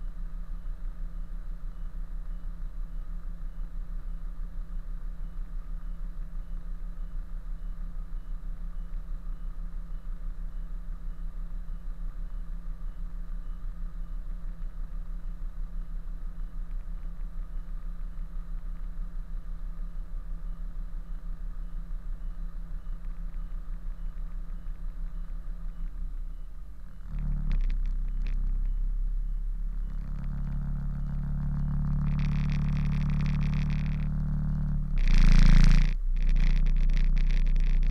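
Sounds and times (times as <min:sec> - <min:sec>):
engine clatter: 0:22.8 - 0:37.9.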